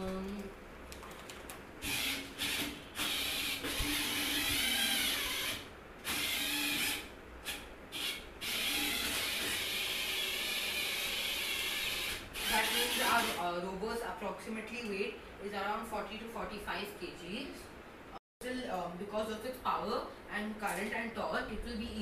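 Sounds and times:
robot drive motors whirring: 1.8 - 13.4.

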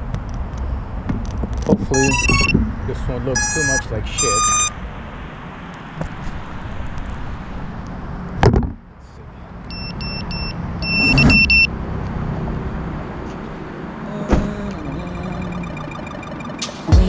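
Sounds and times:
high electronic beeps: 1.9 - 2.6, 3.4 - 4.7, 9.7 - 11.7, 14.8 - 17.0.

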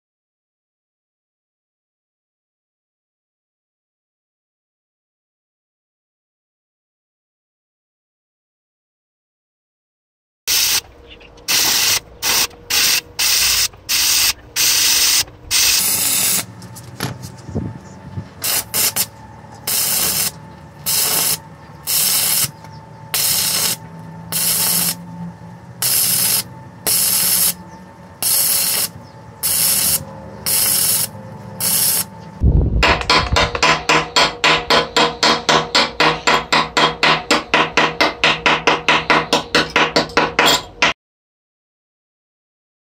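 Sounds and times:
arc welding crackling and hissing: 10.5 - 10.9, 11.5 - 17.4, 18.3 - 25.0, 25.6 - 32.1.

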